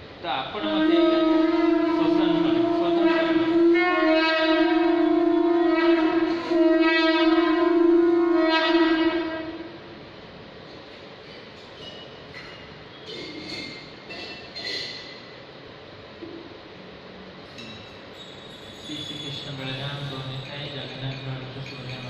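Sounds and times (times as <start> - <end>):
horn-like wind instrument note: 0.6 - 9.8.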